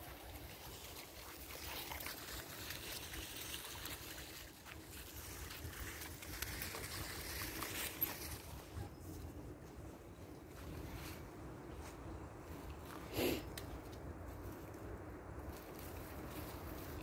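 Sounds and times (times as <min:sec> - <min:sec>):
dry leaves rustling and crackling: 0:00.0 - 0:08.9, 0:13.8 - 0:17.0.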